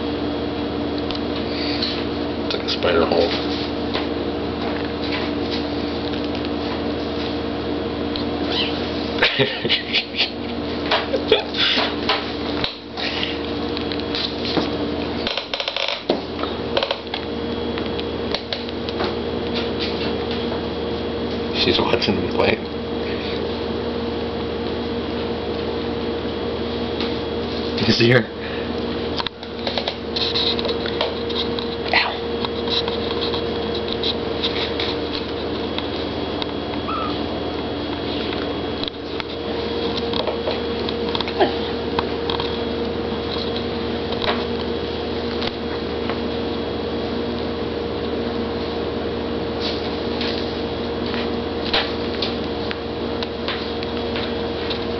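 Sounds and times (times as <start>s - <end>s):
steady hum: 0.0s - 54.9s
kitten chirp-like call: 8.5s - 8.8s, 36.9s - 37.2s.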